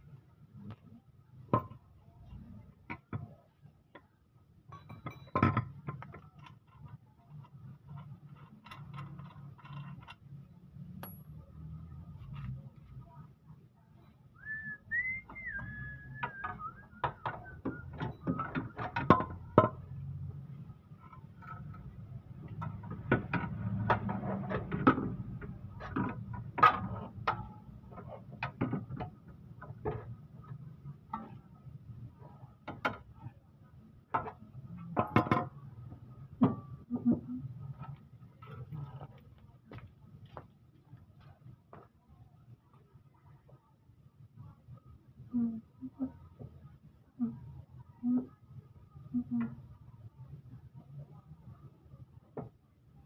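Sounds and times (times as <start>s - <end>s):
short whistle: 14.4s - 17.9s.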